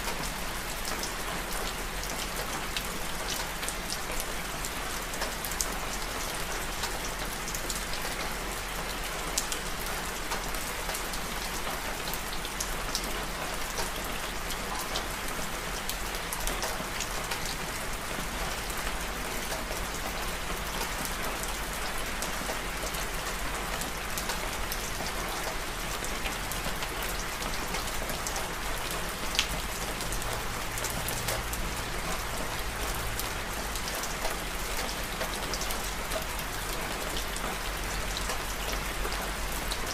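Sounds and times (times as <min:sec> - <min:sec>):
steady rainfall: 0:00.0 - 0:39.9.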